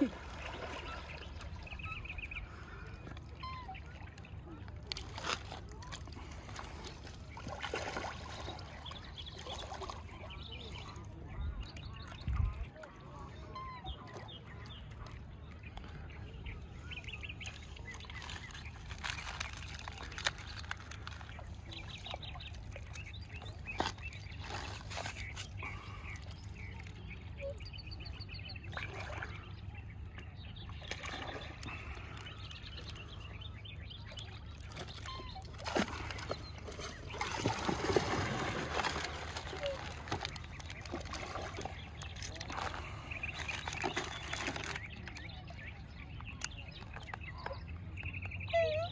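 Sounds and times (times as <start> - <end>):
waterfowl calling and honking: 34.0 - 43.8.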